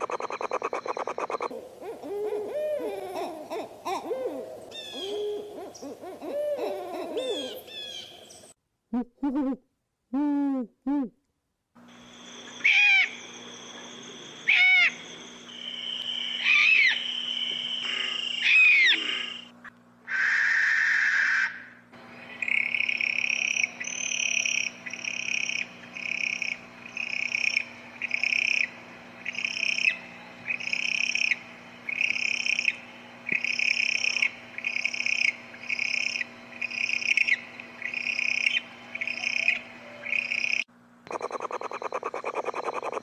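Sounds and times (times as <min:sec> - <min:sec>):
owl calling: 0:00.0 - 0:08.4, 0:12.4 - 0:19.5, 0:20.1 - 0:43.0.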